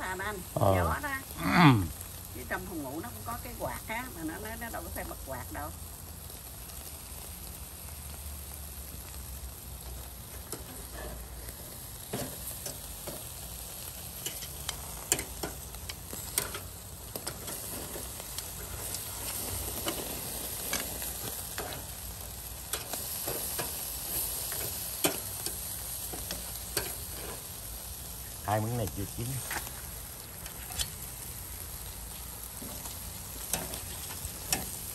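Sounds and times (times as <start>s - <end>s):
fat dripping onto hot coals: 0.0s - 34.9s
meat sizzling on a grill: 0.0s - 34.9s
tongs clicking on grill rack: 14.2s - 19.1s, 20.7s - 21.9s, 22.6s - 27.4s, 32.7s - 33.8s, 34.4s - 34.8s.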